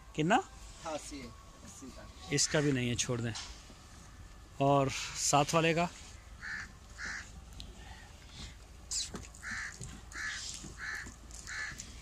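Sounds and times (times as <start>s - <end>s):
crow cawing: 2.4s - 2.8s, 6.4s - 7.4s, 9.4s - 12.0s.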